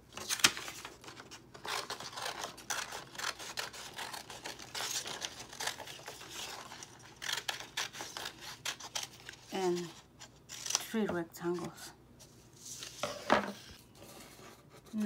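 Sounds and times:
paper rustling: 0.1 - 11.0, 11.6 - 15.0
scissors cutting paper: 1.1 - 9.8.

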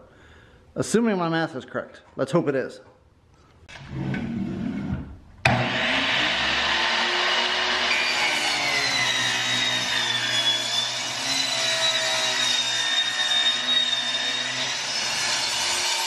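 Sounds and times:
saw blade rasping through wood: 5.6 - 16.0.

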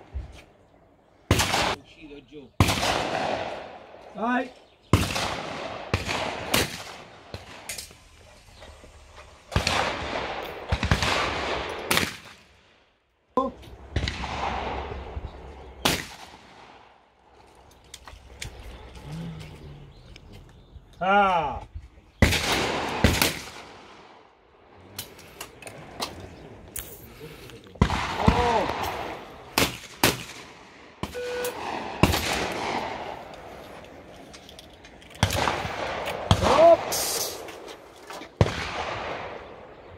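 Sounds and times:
shotgun shots with echo: 1.3 - 1.8, 2.6 - 4.0, 4.9 - 7.9, 9.5 - 12.6, 13.9 - 15.2, 15.8 - 17.0, 22.2 - 24.3, 27.8 - 33.2, 38.4 - 39.7
short beep: 31.1 - 31.6.

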